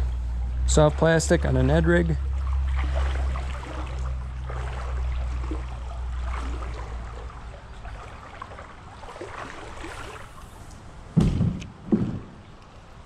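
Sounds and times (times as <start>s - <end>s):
faint river water: 0.0s - 13.0s.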